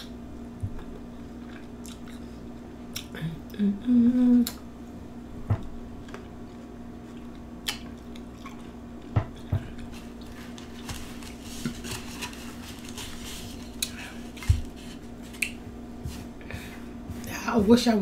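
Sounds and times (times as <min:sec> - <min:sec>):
steady low hum: 0:00.0 - 0:18.0
paper towel rustling: 0:09.9 - 0:15.4.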